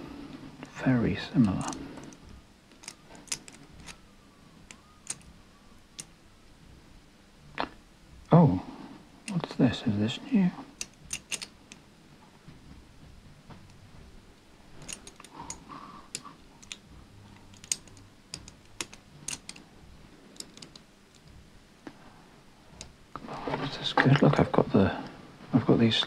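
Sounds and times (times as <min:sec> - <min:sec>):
metal puzzle pieces clicking: 0:01.4 - 0:04.0, 0:04.7 - 0:05.2, 0:10.7 - 0:11.8, 0:14.8 - 0:19.6, 0:20.3 - 0:21.2.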